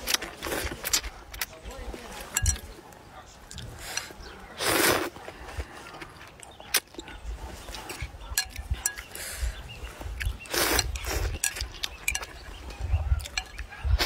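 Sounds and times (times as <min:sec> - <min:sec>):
person slurping noodles: 0:03.8 - 0:05.2, 0:10.4 - 0:11.4
chopsticks clicking against bowl: 0:08.3 - 0:09.1, 0:10.8 - 0:12.4, 0:13.2 - 0:13.7.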